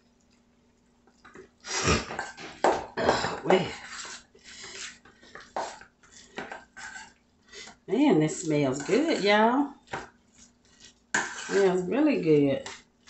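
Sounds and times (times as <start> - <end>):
spoon scraping a steel bowl: 3.6 - 9.5, 10.3 - 11.9.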